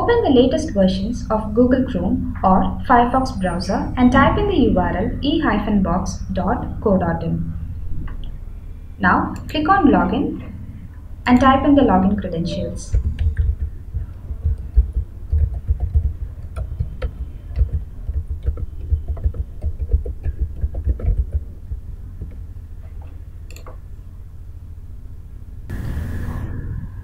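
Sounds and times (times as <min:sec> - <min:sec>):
computer keyboard typing: 0:12.8 - 0:21.5.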